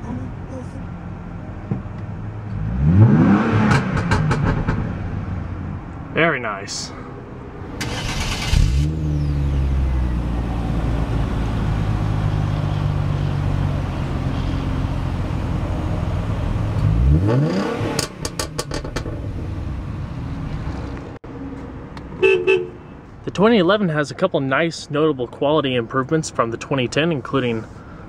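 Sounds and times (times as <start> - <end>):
car engine idling and revving: 0.0 - 6.1, 7.3 - 23.0.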